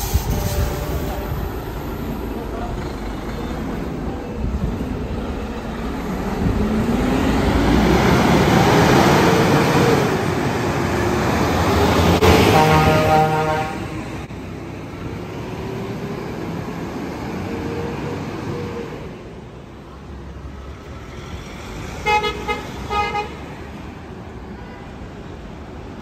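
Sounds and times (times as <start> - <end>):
heavy lorry and street traffic: 0.0 - 26.0
vehicle horn toots: 12.2 - 14.0, 22.0 - 23.4.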